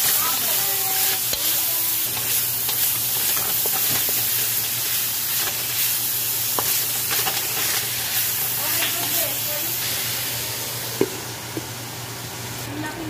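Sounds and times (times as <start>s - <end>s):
pork sizzling in hot oil: 0.0s - 12.8s
spatula scraping and tapping pan: 1.2s - 4.7s.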